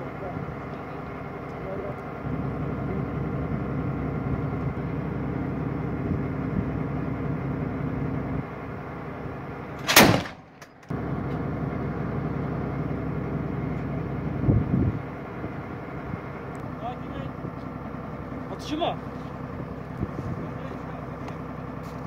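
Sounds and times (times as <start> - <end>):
armoured vehicle engine idling: 0.0 - 22.0
loud cannon shot: 9.8 - 10.6.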